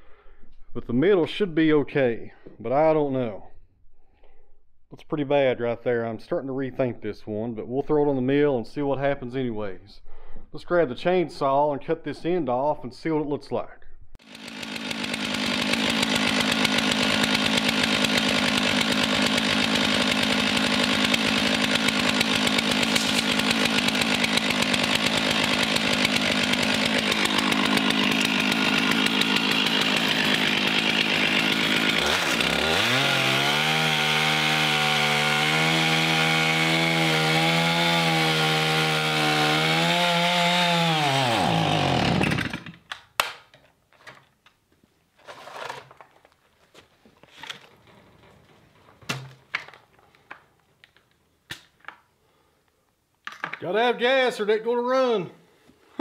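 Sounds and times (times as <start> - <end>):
chainsaw running: 14.2 - 42.9.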